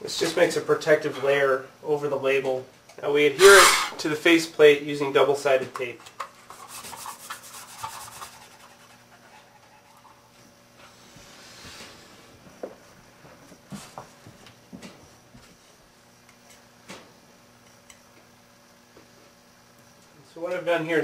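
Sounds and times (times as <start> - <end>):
hands rubbing tape: 6.4 - 10.0.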